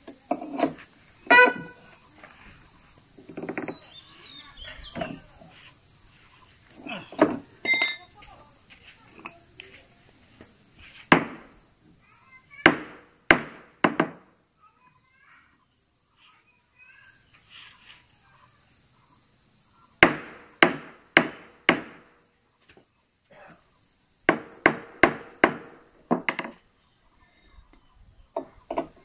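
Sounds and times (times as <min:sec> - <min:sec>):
hand tool knocking on wood: 0:12.7 - 0:14.2, 0:24.3 - 0:26.6.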